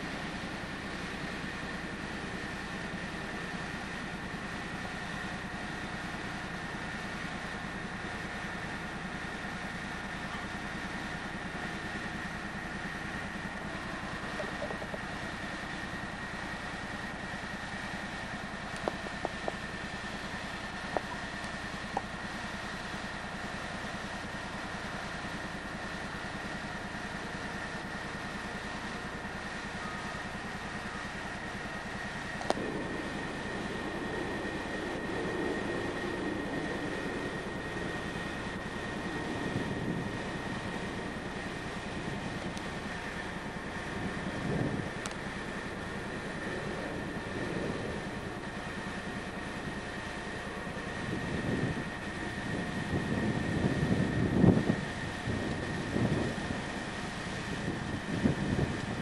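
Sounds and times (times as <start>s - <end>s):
running vehicle hum: 0.0s - 59.0s
thin constant whine: 0.0s - 59.0s
faint clicks: 32.4s - 32.6s.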